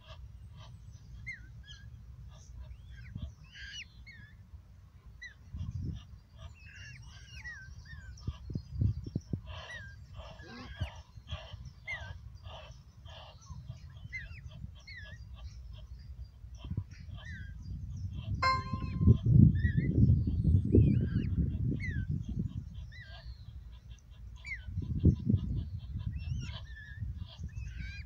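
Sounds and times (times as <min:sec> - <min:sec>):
birds chirping: 0:18.4 - 0:19.2.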